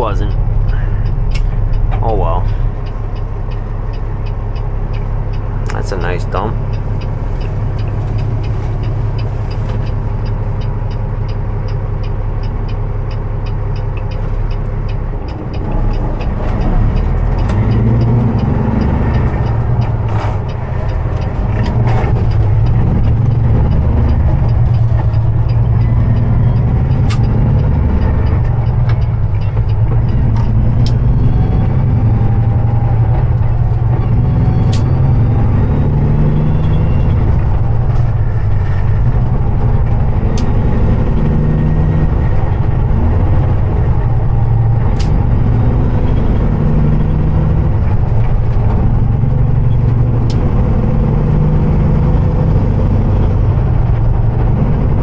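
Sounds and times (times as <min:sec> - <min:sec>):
fast steady ticking: 0:00.0 - 0:35.0
truck diesel engine: 0:00.0 - 0:55.0.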